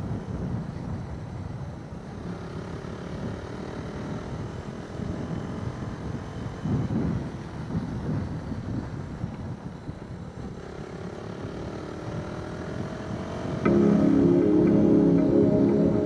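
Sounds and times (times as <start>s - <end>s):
wind rumbling on microphone: 0.0s - 2.3s, 4.3s - 11.0s.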